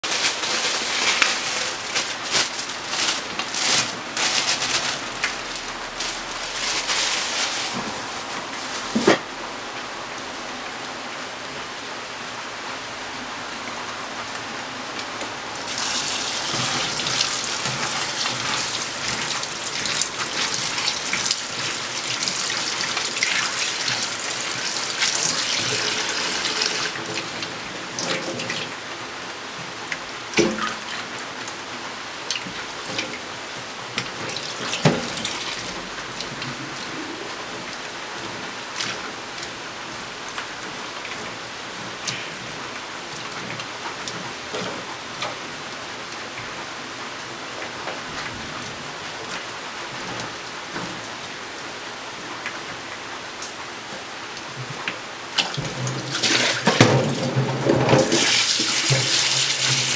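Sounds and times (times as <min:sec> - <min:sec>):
tap water running and splashing: 0:00.0 - 0:09.2, 0:15.1 - 0:36.8, 0:54.4 - 0:59.9.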